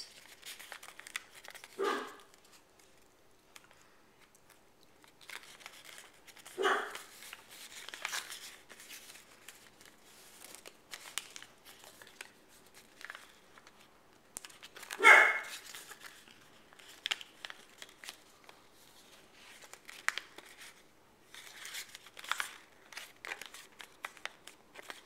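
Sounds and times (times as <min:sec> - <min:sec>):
paper rustling and creasing: 0:00.0 - 0:25.0.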